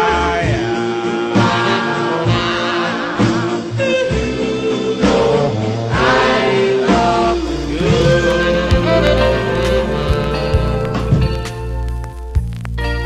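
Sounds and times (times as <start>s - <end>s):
person singing with vibrato: 6.9s - 11.8s
reggae song: 6.9s - 13.0s
deep bass line: 7.2s - 13.0s.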